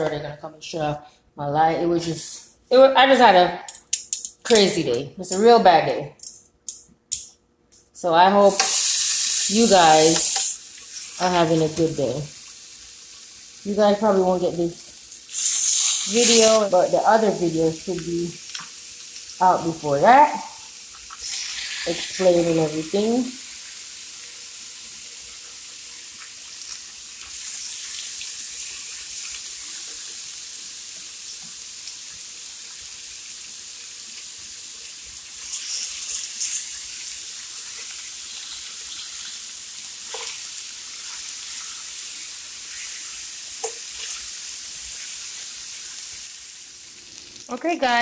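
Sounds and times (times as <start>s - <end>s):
metal tongs clicking and scraping: 3.7s - 4.8s, 6.2s - 7.8s
fish sizzling on a grill: 8.4s - 48.0s.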